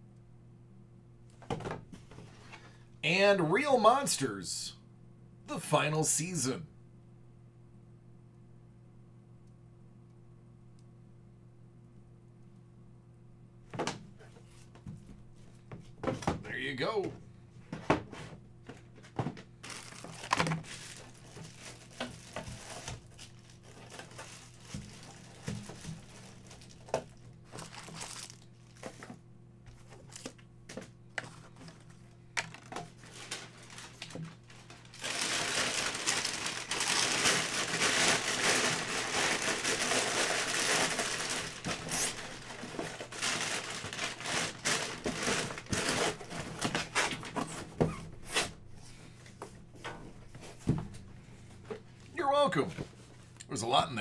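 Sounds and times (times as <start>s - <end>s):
packing paper crumpling: 19.6s - 29.2s, 31.2s - 47.2s.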